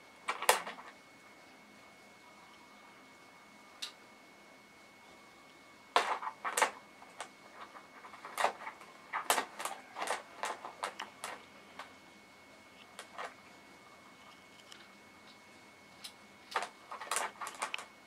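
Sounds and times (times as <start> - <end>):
pebbles clacking together: 6.0 - 11.9
plastic bag rustling: 6.0 - 12.0, 16.6 - 17.9.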